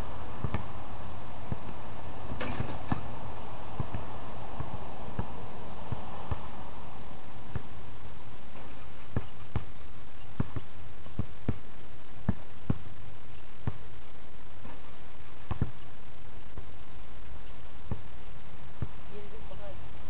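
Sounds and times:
steady background hiss: 0.0 - 20.0
basketball bouncing: 0.4 - 0.7, 2.4 - 6.5, 7.5 - 7.8, 8.6 - 9.7, 10.3 - 11.6, 12.2 - 12.9, 13.6 - 13.9, 15.5 - 15.8.

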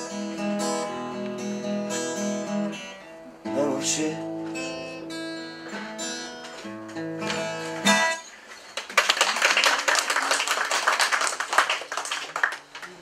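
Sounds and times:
acoustic guitar strumming: 0.0 - 8.7
audience applauding: 8.7 - 13.0.

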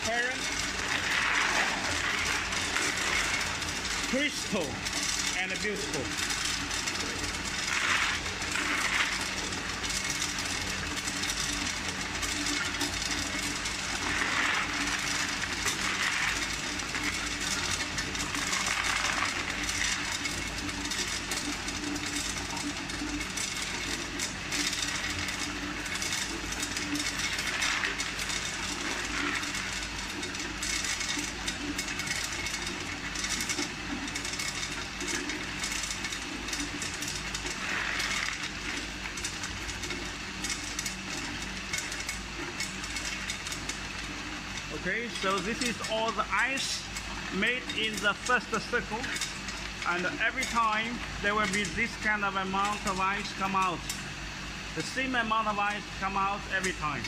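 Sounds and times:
ice tubes clattering down chute: 0.0 - 54.0
ice machine humming: 0.0 - 57.0.

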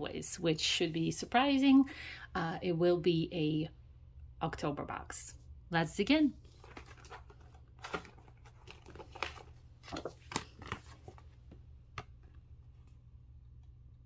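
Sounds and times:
card being handled: 6.4 - 12.2.

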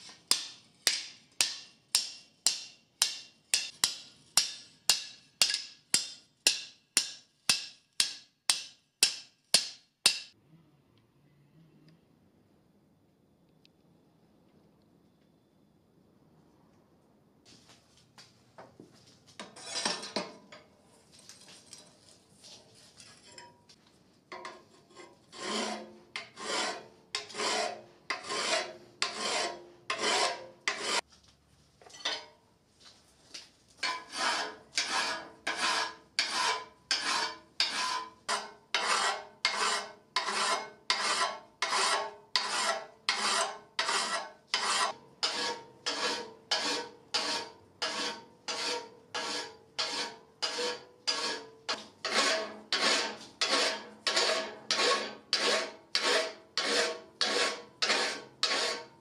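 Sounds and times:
hand file rasping on steel: 24.4 - 31.0, 33.8 - 59.0.

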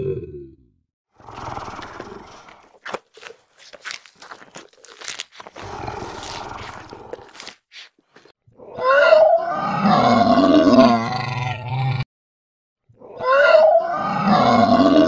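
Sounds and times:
growls and snarls: 0.0 - 0.6, 1.2 - 2.8, 5.5 - 7.6, 8.6 - 12.1, 13.0 - 15.0
dinosaur roar: 0.0 - 2.7, 5.6 - 7.5, 8.6 - 12.1, 13.0 - 15.0.

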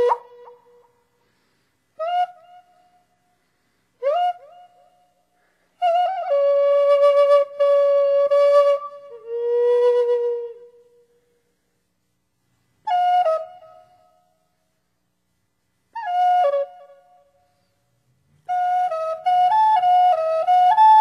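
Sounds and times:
solo flute melody: 0.0 - 0.9, 2.0 - 3.3, 4.0 - 11.2, 12.8 - 14.5, 15.9 - 17.7, 18.4 - 21.0.

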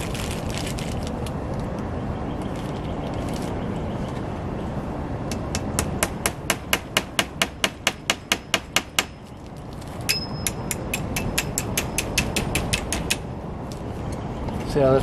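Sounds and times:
hatchet hammering nails: 5.3 - 9.2, 10.1 - 13.3.

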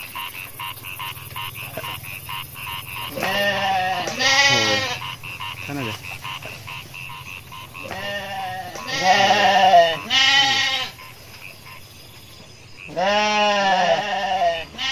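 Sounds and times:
lambs bleating: 1.4 - 11.0, 12.9 - 14.9.

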